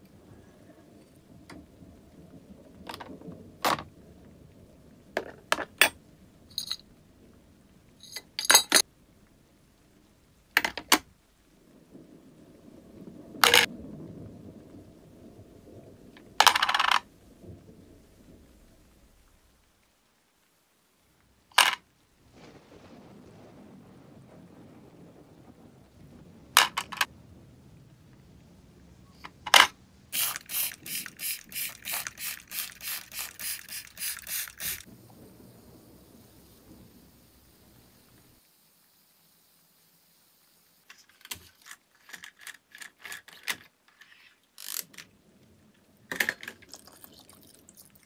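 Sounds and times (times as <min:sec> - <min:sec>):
brass part clinking into jar: 0:06.5 - 0:06.8
metal parts clinking into glass jar: 0:06.5 - 0:06.8, 0:08.0 - 0:08.8
spray bottle hissing squirts: 0:30.2 - 0:34.9.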